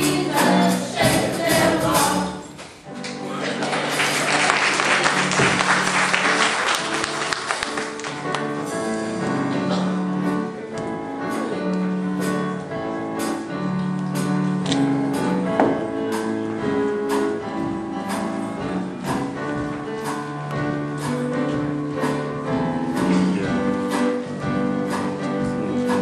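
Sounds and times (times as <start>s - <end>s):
steady percussion beat: 0.0s - 2.5s, 12.2s - 26.0s
church keyboard chords: 0.0s - 26.0s
applause: 3.0s - 8.4s.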